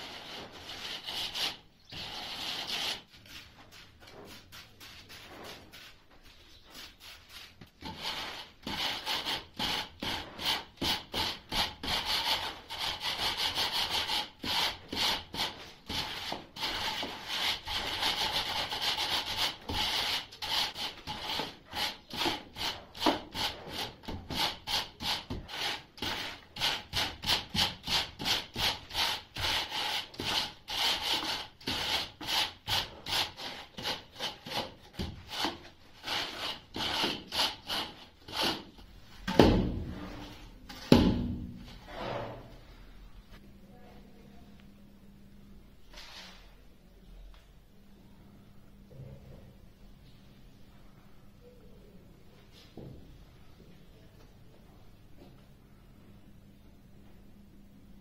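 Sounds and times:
metal straightedge scraping mortar: 7.2 - 38.8.

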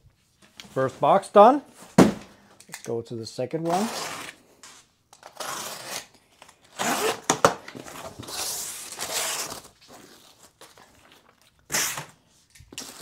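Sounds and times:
packaging tearing and crinkling: 8.0 - 12.1, 12.7 - 13.0.

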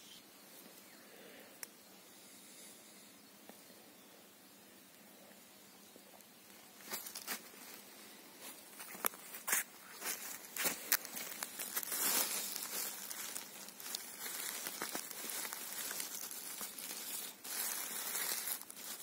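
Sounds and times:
dry leaves rustling and crackling: 6.5 - 19.0
twigs snapping: 10.0 - 19.0.

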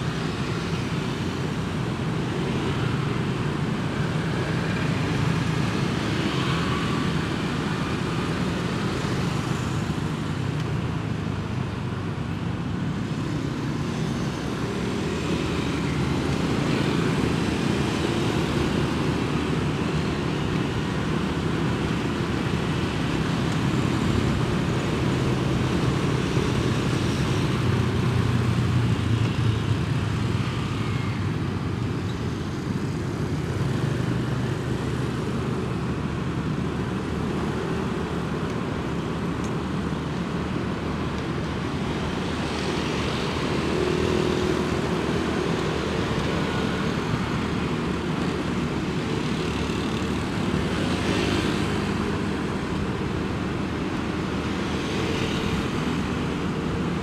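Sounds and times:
wind and tyre noise: 0.0 - 57.0.

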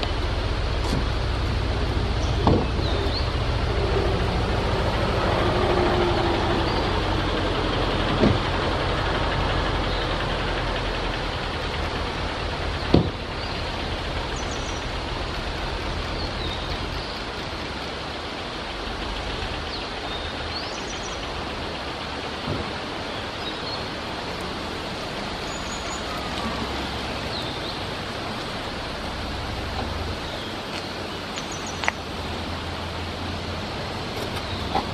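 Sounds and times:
road traffic noise: 0.0 - 34.9.

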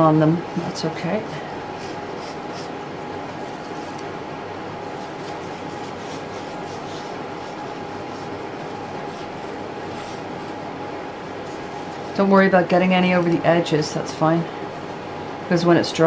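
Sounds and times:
faint hum: 0.0 - 16.0
wooden stick scraping enamel: 4.9 - 10.6.

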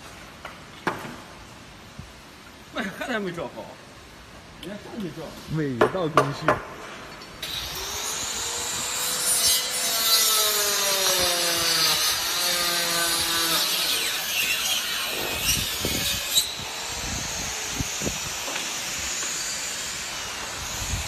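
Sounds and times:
power tool rasping hiss: 7.4 - 21.0.

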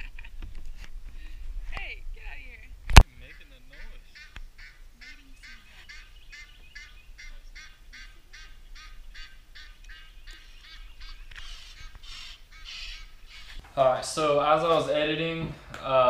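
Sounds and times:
geese honking: 3.0 - 15.0.

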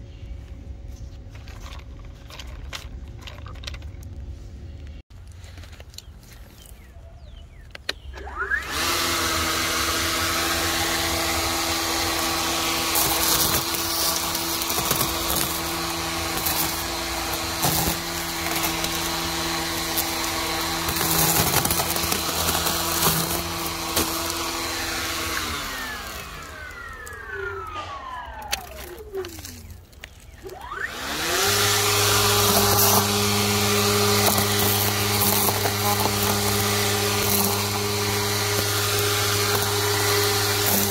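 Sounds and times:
string trimmer whining: 7.7 - 40.9
trimmer cutting dry grass: 8.2 - 40.9.

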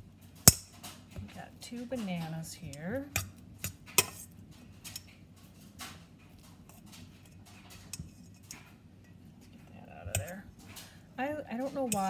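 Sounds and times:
fork clinking against metal bowl: 11.6 - 12.0.

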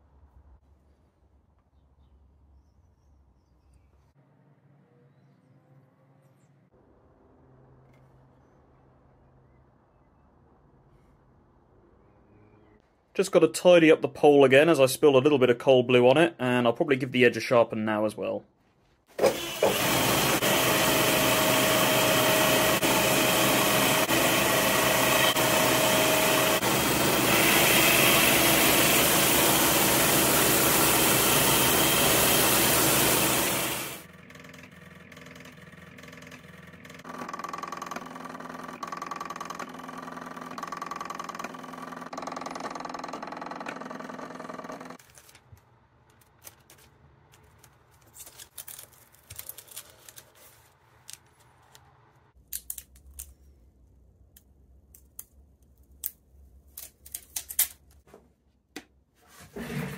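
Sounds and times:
belt grinder grinding steel: 19.2 - 34.0.

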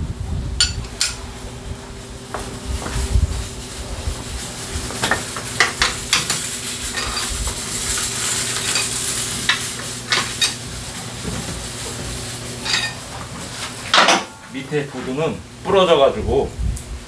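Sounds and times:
steady low hum: 0.0 - 17.0
metal tools clinking and scraping: 6.1 - 7.3, 12.6 - 13.0.

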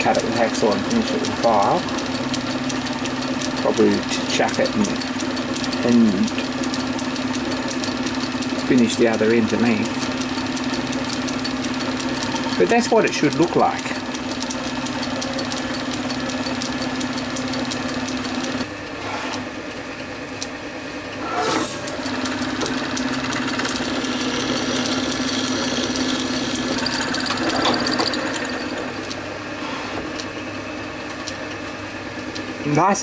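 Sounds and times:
lathe motor humming: 0.0 - 32.6
file scraping on metal: 21.2 - 21.8.

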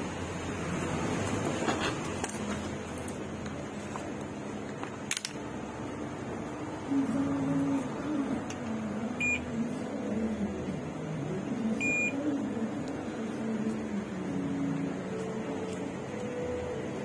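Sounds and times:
multimeter continuity beeps: 9.2 - 9.5, 11.8 - 12.2.

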